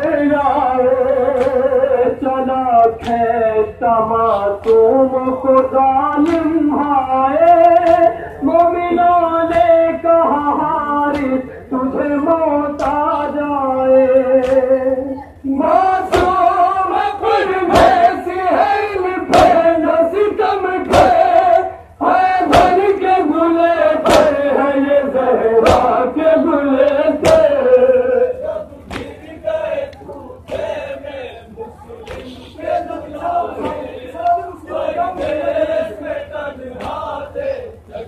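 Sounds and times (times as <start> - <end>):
men chanting a lament: 0.0 - 38.0
chest-beating slaps: 1.3 - 1.7, 2.8 - 3.3, 4.6 - 5.0, 6.1 - 6.6, 7.6 - 8.7, 11.1 - 11.5, 12.8 - 13.1, 14.4 - 14.8, 16.1 - 16.5, 17.7 - 18.1, 19.3 - 19.7, 20.8 - 21.4, 22.5 - 23.0, 24.0 - 24.4, 25.6 - 26.0, 26.8 - 27.8, 28.8 - 29.3, 32.0 - 32.5, 33.6 - 34.4, 35.1 - 35.6, 36.8 - 37.1.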